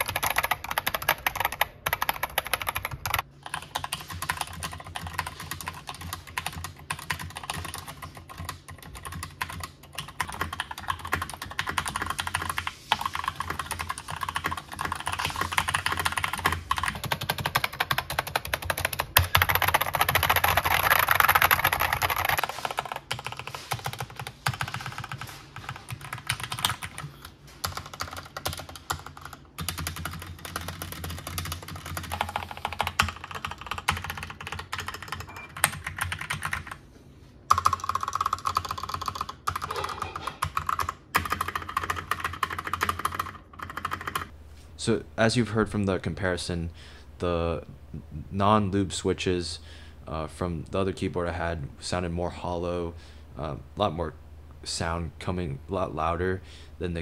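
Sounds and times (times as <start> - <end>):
fast typing on mechanical keyboards: 0.0 - 36.8, 37.5 - 44.3.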